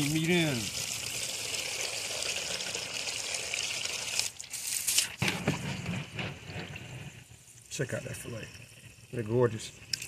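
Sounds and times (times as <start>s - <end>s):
water running: 0.0s - 5.2s, 6.4s - 10.0s.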